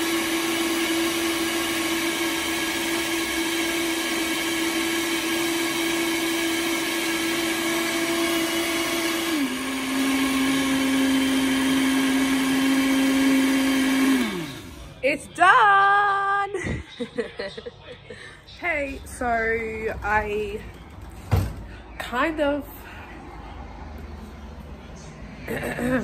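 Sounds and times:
blender motor running: 0.0s - 15.1s.

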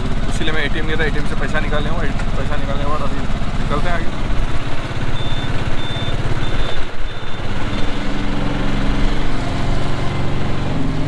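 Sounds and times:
small engine running: 0.0s - 11.0s
short high beeps: 5.2s - 8.0s.

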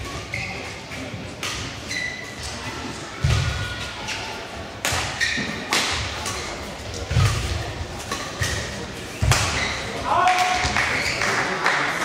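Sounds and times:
racket striking shuttlecock: 9.2s - 9.7s.

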